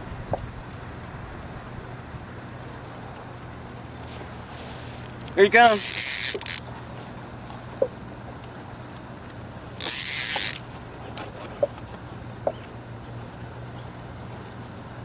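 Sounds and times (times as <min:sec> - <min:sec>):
low hum: 0:00.0 - 0:15.0
fishing reel drag buzzing: 0:04.7 - 0:06.7, 0:09.7 - 0:11.3.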